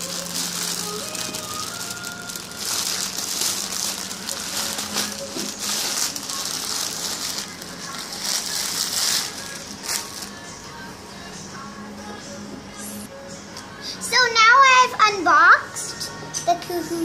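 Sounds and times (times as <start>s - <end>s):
plastic packaging crinkling: 0.0s - 10.5s.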